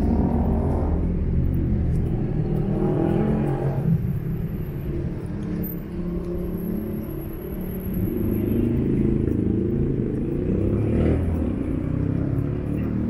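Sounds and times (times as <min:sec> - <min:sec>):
cars driving past: 0:00.0 - 0:13.0
car engine speeding up: 0:08.7 - 0:13.0.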